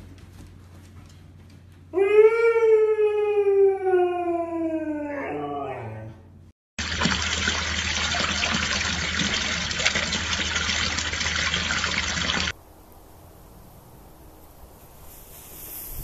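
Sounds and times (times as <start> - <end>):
fountain water pouring and splashing: 6.8 - 12.6
faint hiss: 12.6 - 16.0.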